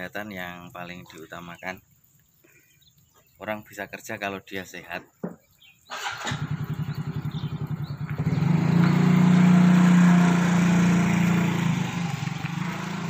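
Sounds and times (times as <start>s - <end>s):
motorcycle engine running: 6.0s - 13.0s.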